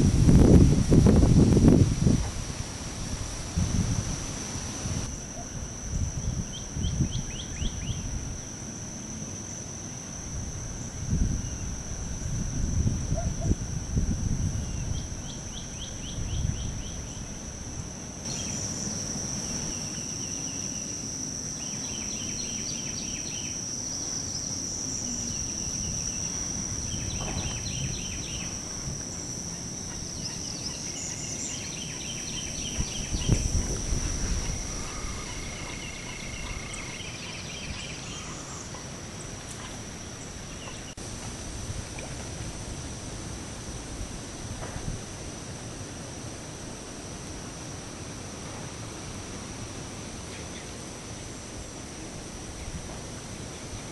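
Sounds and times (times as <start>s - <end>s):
wind rumble on microphone: 0.0s - 8.5s, 10.2s - 18.4s, 24.8s - 30.5s, 31.8s - 46.7s
steady high-pitched whine: 0.0s - 53.9s
rattling trills of animals: 34.2s - 37.0s.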